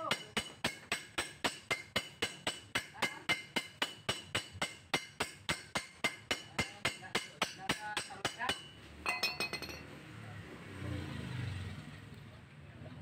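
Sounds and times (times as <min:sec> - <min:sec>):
steel tool tapping on metal: 0:00.0 - 0:09.8.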